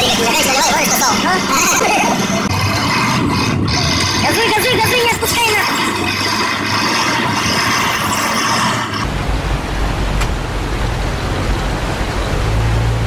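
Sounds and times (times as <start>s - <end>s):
truck diesel engine rumbling: 0.0s - 13.0s
rushing river water: 5.8s - 13.0s.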